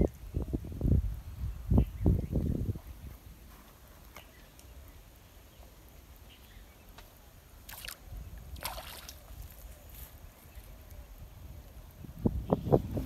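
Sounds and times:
fish splashing in water: 7.6 - 9.6.

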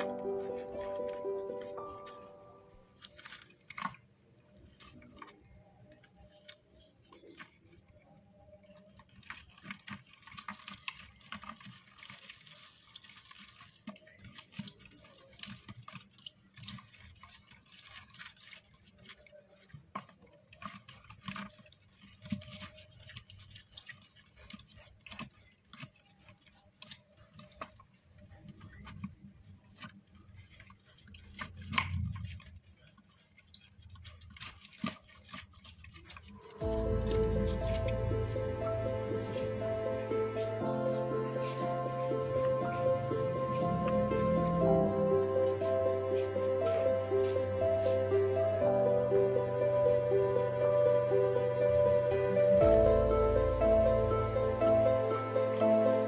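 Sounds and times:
hamsters rustling in shavings: 0.0 - 56.0.

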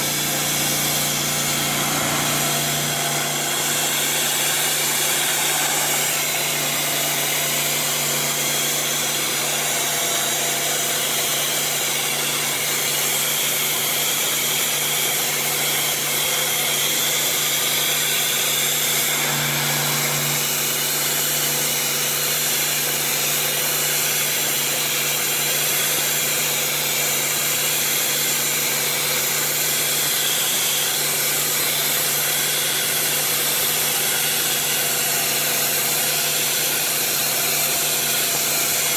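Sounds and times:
low hum: 0.0 - 8.4
pressure washer blasting hiss: 0.0 - 13.1.

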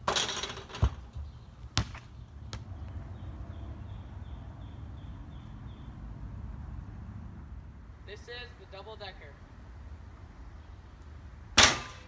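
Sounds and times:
basketball bouncing on concrete: 0.1 - 3.0.

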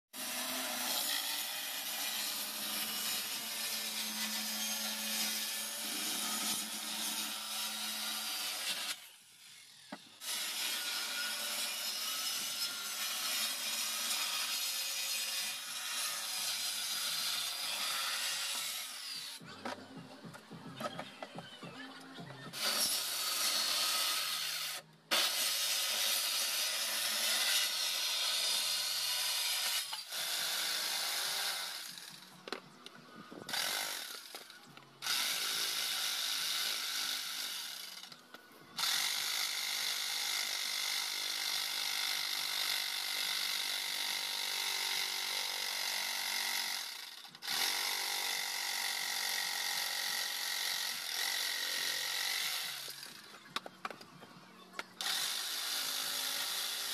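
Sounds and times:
jigsaw cutting plywood: 0.2 - 19.4, 55.0 - 56.9.

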